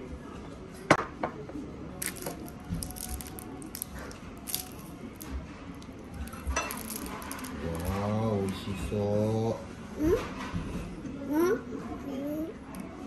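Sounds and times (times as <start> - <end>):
tableware clinking: 6.2 - 8.4.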